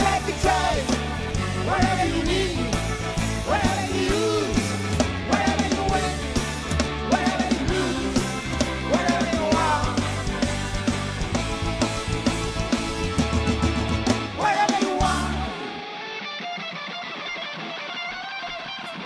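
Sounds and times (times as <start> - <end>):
male lead singer: 0.0 - 10.6, 14.3 - 15.9
live rock band playing: 0.0 - 19.0.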